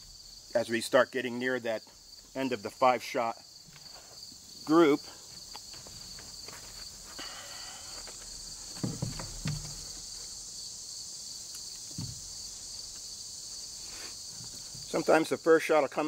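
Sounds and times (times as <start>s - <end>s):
shrill insect chorus: 0.0s - 16.0s
soft knocks: 8.7s - 10.1s, 11.9s - 12.4s.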